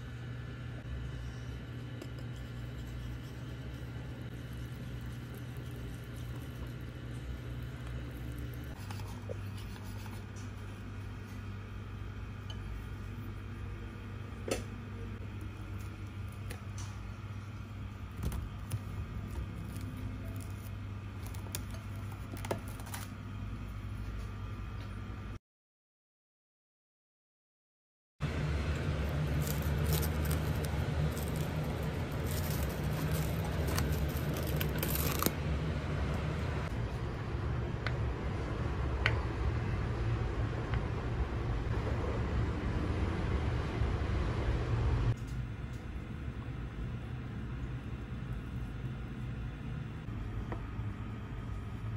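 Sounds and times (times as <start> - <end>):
steady low hum: 0.0 - 25.4, 28.2 - 51.9
whisk stirring batter: 1.8 - 11.4, 29.1 - 34.9
whisk scraping bowl: 1.8 - 11.5, 29.0 - 35.3
cling film crinkling: 29.0 - 35.4.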